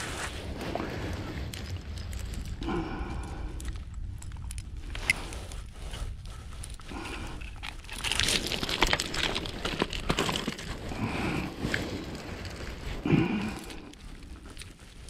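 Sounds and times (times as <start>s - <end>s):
pebbles crunching and clattering: 0.1s - 15.0s.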